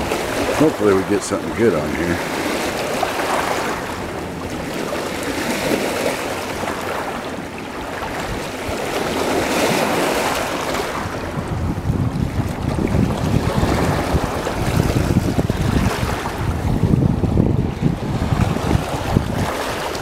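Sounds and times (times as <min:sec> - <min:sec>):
river water splashing on rocks: 0:00.0 - 0:11.3
wind buffeting microphone: 0:00.0 - 0:20.0.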